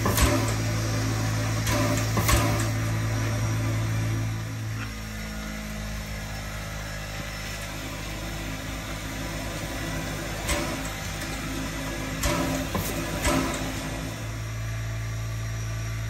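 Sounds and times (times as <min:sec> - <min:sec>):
steam hiss: 0:00.0 - 0:04.2, 0:08.6 - 0:14.6
steam locomotive low hum: 0:00.0 - 0:16.0.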